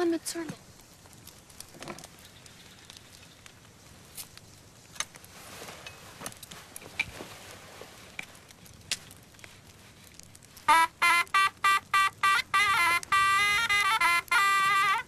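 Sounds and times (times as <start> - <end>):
faint clicks: 0.5 - 5.3.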